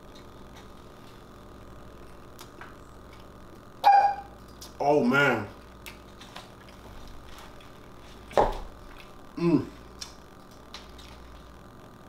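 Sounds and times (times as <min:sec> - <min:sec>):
man chewing cookie: 0:05.6 - 0:11.6
man humming in enjoyment: 0:09.4 - 0:09.8.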